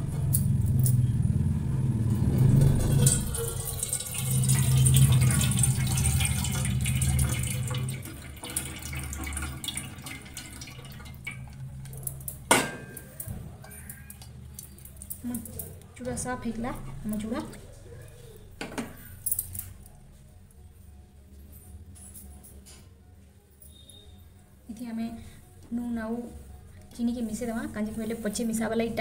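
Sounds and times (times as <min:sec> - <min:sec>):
water pouring into steel bowl: 0:02.6 - 0:12.0.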